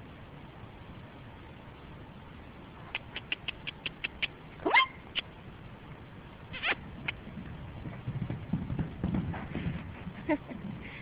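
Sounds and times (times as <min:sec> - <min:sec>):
person clucking tongue clicks: 0:02.9 - 0:04.4.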